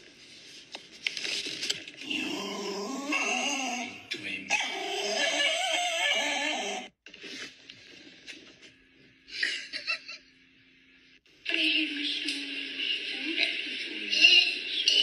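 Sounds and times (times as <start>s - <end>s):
small dog whining: 2.4s - 6.9s.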